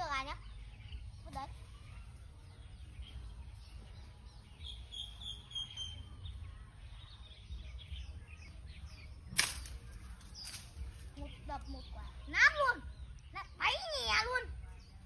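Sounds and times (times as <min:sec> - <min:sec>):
faint bird chirps: 0:00.0 - 0:15.0
pole striking tree branches: 0:09.2 - 0:11.2.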